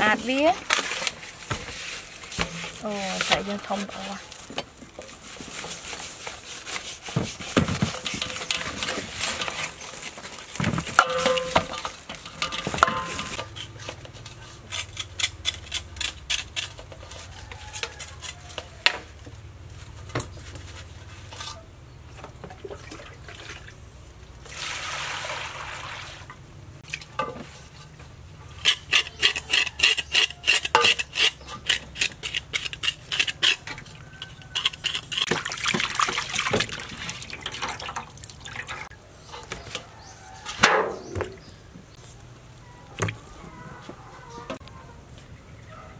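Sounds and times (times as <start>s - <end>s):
hands scrubbing fish with salt: 0.1s - 10.6s
knife scraping fish skin: 13.3s - 18.6s, 28.6s - 35.3s.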